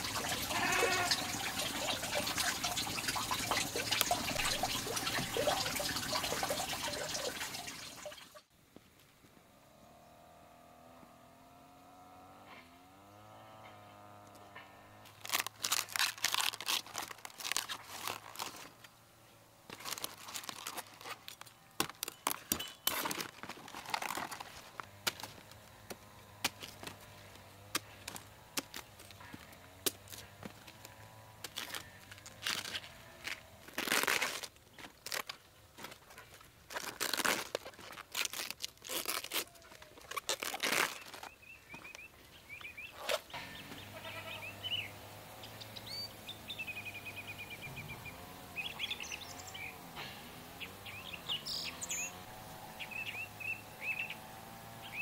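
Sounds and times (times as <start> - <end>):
cabbage crunching and tearing: 0.0 - 1.5, 15.0 - 19.0, 19.6 - 42.1, 42.9 - 43.3.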